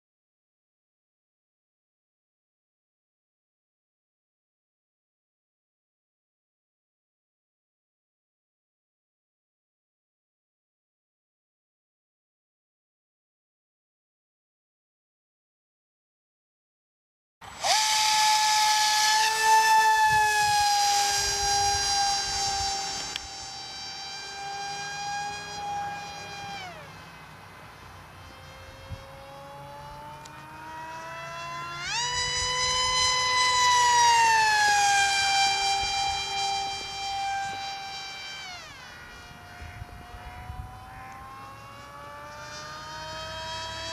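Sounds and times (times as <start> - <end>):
electric motor and propeller whining: 17.4 - 43.9.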